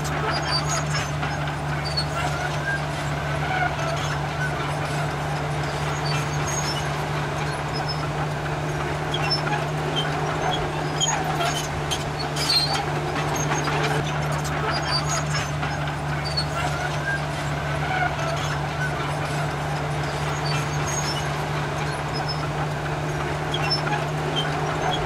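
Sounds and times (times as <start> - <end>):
bulldozer engine running: 0.0 - 25.0
faint high squeaks: 9.1 - 14.0.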